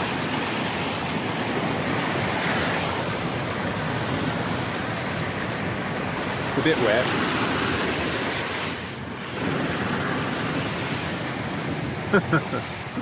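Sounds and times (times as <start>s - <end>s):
water rushing from car tyres: 0.0s - 13.0s.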